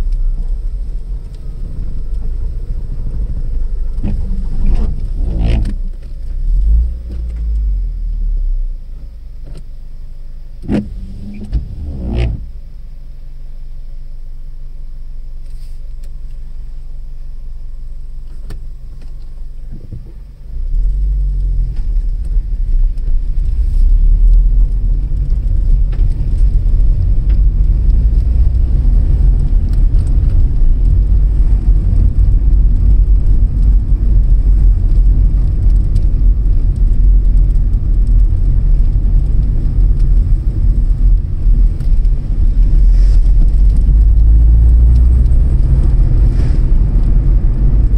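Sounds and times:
car engine idling: 0.0s - 47.9s
engine and road noise rumble: 0.0s - 47.9s.

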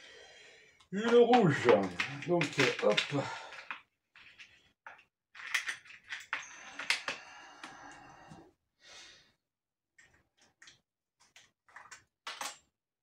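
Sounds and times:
handling clicks and rustling: 1.0s - 7.2s.

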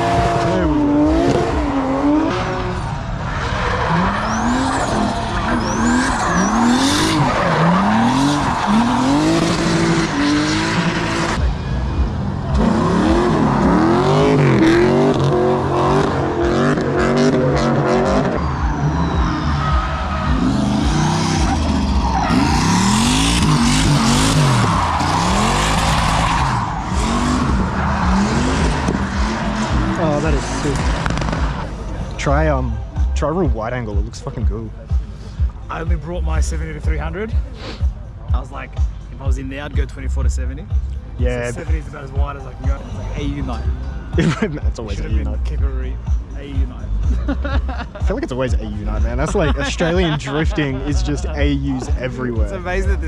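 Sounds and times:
car engines revving: 0.0s - 53.0s
tyres skidding and squealing: 0.0s - 53.0s.

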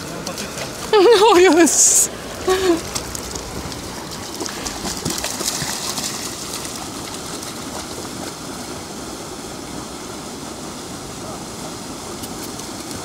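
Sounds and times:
water rushing over a weir: 0.0s - 13.0s
dog splashing through shallows: 2.8s - 8.7s.

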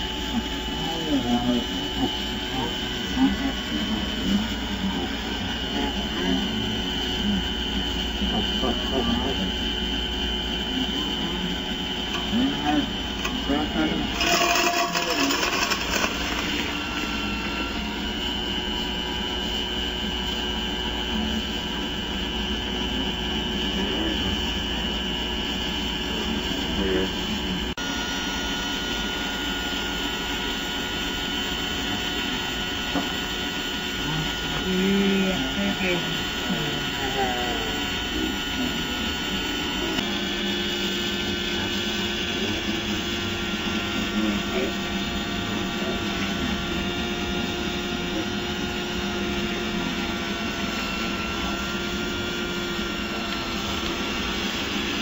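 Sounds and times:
toy loader mechanical whine: 0.0s - 19.4s
steady hum: 0.0s - 55.0s
whining mechanical drone: 0.0s - 55.0s.

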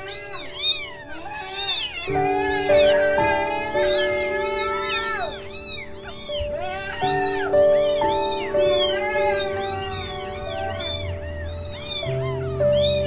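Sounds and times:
background music with held notes: 0.0s - 13.0s
kittens mewing: 0.0s - 13.0s.

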